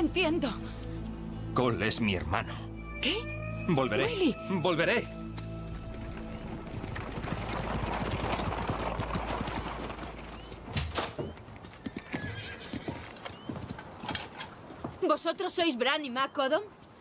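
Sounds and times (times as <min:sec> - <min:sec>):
hooves clip-clopping: 0:04.8 - 0:15.8
wooden wagon rattling: 0:05.8 - 0:15.6.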